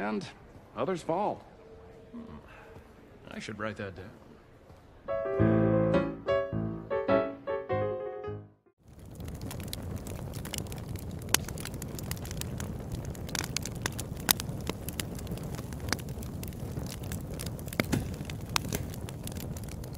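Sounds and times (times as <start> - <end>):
fire crackling: 8.8 - 19.9.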